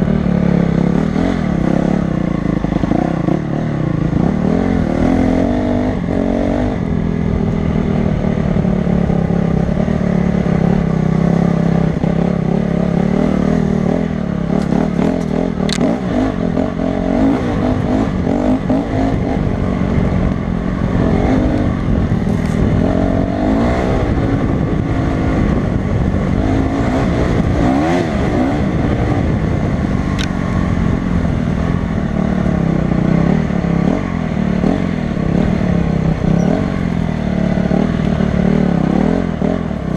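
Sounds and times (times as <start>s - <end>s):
dirt bike engine revving: 0.0s - 39.9s
sharp click: 30.1s - 30.4s.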